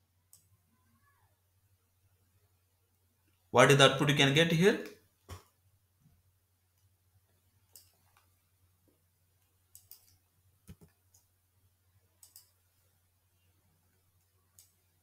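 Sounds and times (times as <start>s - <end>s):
faint low hum: 5.1s - 15.0s
mouse and keyboard clicks: 7.7s - 8.3s, 9.7s - 11.3s, 12.2s - 12.6s.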